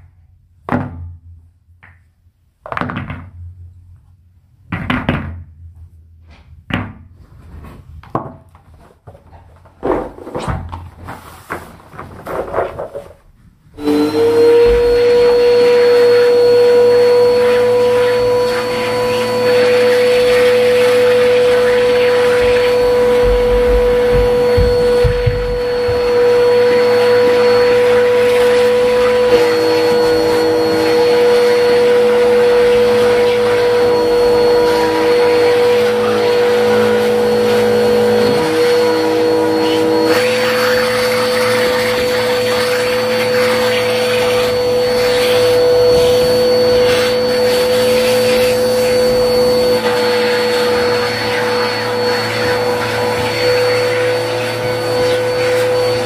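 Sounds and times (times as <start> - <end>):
vacuum cleaner running: 9.8 - 13.1, 13.7 - 56.0.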